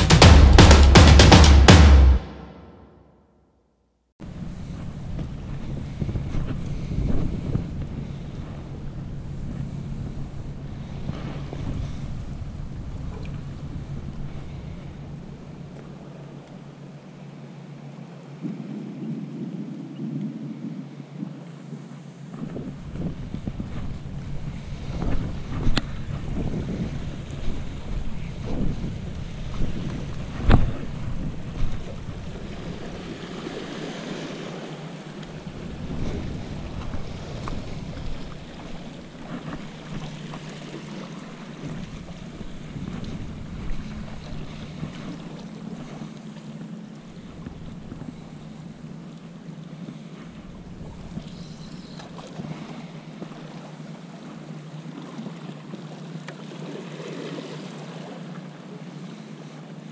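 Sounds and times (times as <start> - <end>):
sharp knock: 0.0 - 3.0
wind buffeting microphone: 4.2 - 16.3, 18.4 - 46.1, 50.2 - 51.8
waves breaking on rocks: 22.4 - 48.8.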